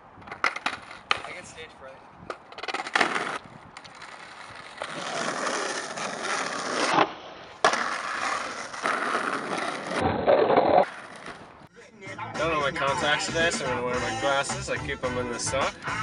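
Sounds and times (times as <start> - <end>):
skateboard wheels rolling on asphalt: 0.0 - 11.7
skateboard landing clatter: 0.3 - 1.4, 2.3 - 3.4, 6.4 - 11.5
skateboard tail pop clack: 6.9 - 7.8.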